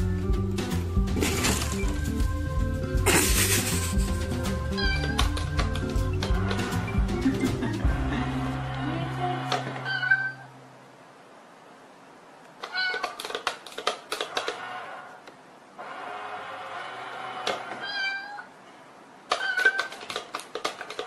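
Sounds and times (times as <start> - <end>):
toy lid popping open and shut: 19.3 - 21.0.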